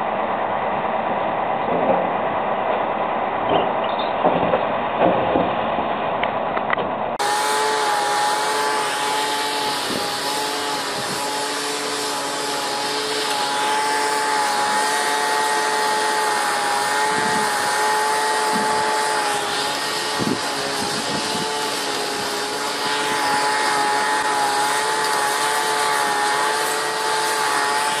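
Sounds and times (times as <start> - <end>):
steady whine with air hiss: 7.2 - 28.0.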